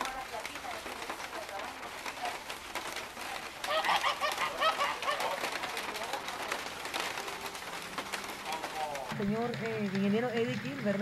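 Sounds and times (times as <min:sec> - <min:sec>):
waterfowl calling: 0:03.3 - 0:08.8.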